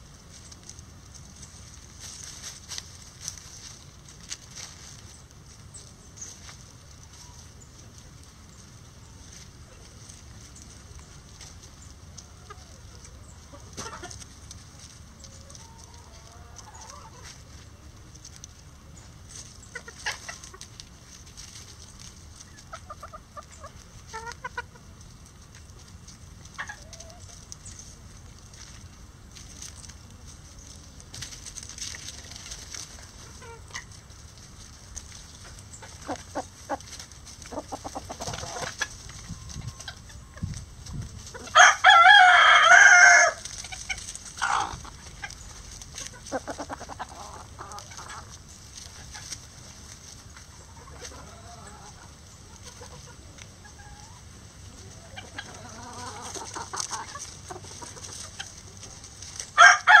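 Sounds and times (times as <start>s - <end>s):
hens clucking softly: 0.3s - 41.6s, 42.2s - 60.0s
rooster crowing: 41.5s - 43.4s, 59.6s - 60.0s.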